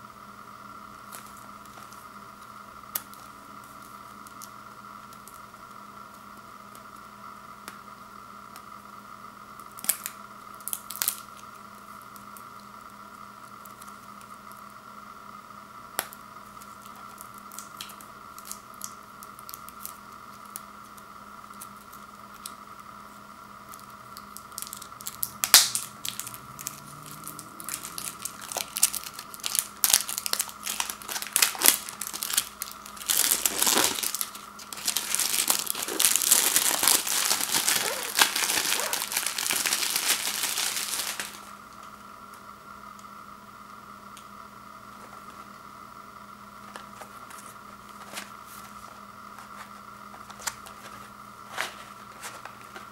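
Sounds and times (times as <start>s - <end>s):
faint steady hum: 0.0s - 52.9s
plastic wrap crinkling and tearing: 24.2s - 41.5s.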